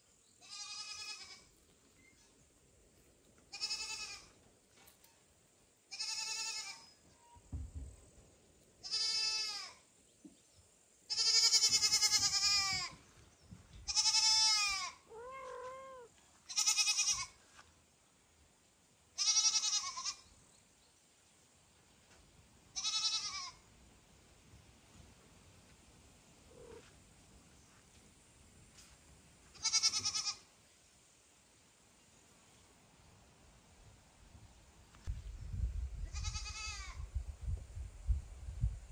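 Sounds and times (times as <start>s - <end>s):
kitten meowing: 15.1s - 16.1s.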